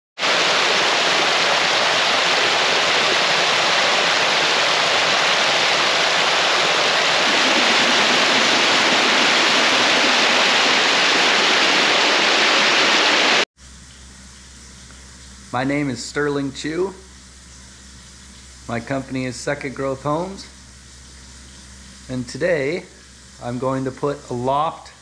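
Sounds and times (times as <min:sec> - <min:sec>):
waterfall rushing into a pool: 0:00.2 - 0:13.5.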